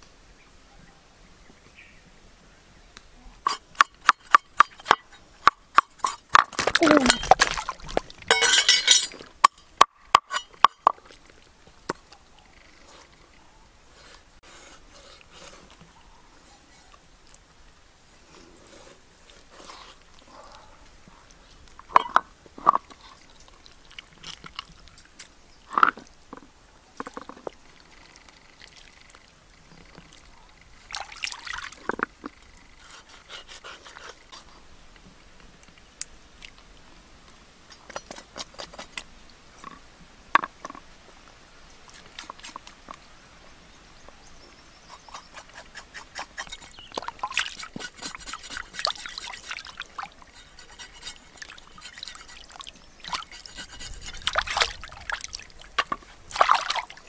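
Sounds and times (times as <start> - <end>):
water splashing and trickling: 3.4 - 14.4, 16.9 - 39.9, 44.2 - 57.0
knife scraping fish on board: 45.1 - 46.8, 47.4 - 49.7, 50.3 - 52.5, 53.1 - 54.4.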